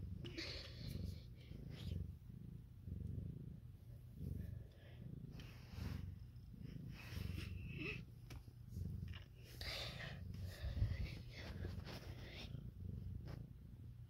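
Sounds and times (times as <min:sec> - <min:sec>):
cat purring: 0:00.0 - 0:14.0.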